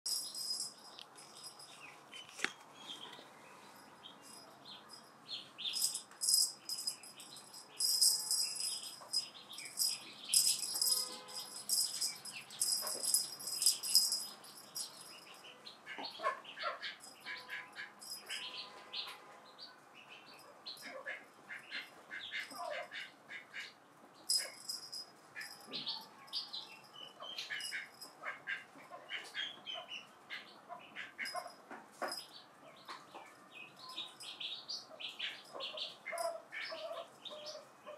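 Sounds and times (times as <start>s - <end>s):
cat toy rattling: 0.1s - 1.8s, 5.7s - 15.3s, 24.3s - 26.0s.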